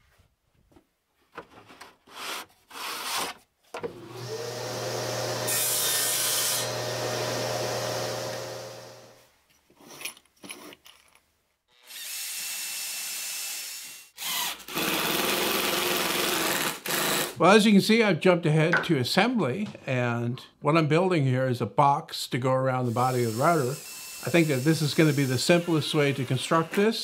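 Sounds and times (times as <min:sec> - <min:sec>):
table saw cutting plywood: 0:02.1 - 0:09.2, 0:22.9 - 0:27.0
cordless drill driving screw: 0:04.2 - 0:09.1, 0:11.8 - 0:17.4, 0:23.1 - 0:26.4.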